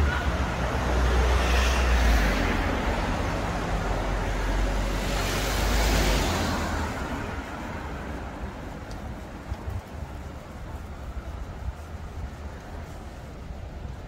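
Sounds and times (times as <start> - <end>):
car passing by: 0.0 - 9.2.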